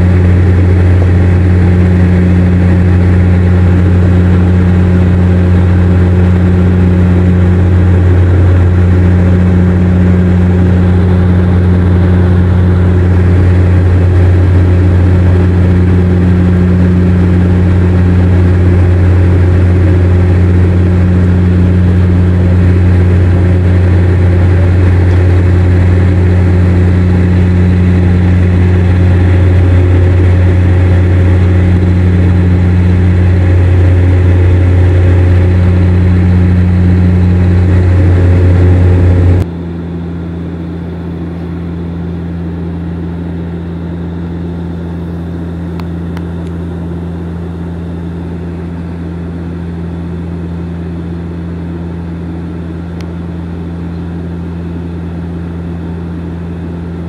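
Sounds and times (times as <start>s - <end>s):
airplane cabin engine drone: 0.0s - 57.0s.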